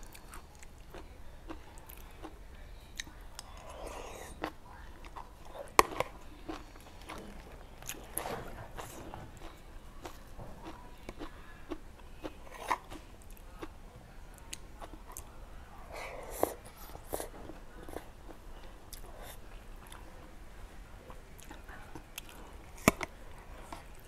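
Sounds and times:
chewing and smacking mouth sounds: 0.0s - 13.8s, 21.1s - 24.0s.

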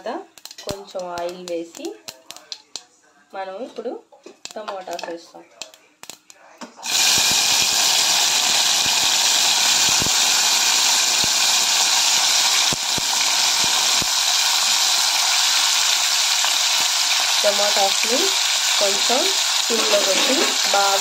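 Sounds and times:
tomatoes sizzling in oil: 0.0s - 2.6s, 5.6s - 21.0s
oil popping: 5.6s - 17.6s.

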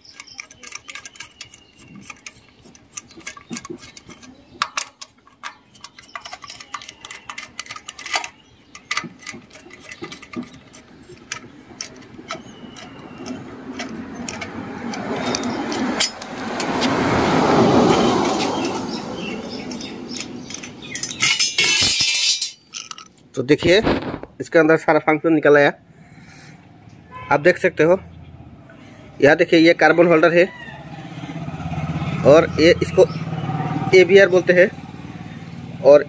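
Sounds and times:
small metallic clicks: 0.0s - 17.1s, 17.8s - 23.4s.

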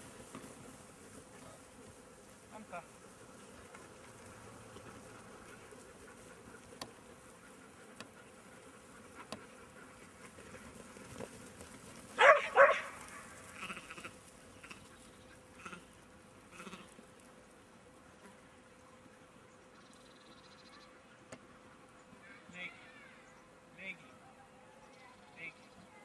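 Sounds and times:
faint insect buzz: 13.2s - 23.4s
sheep bleating: 13.5s - 14.9s, 15.6s - 15.9s, 16.5s - 17.0s.

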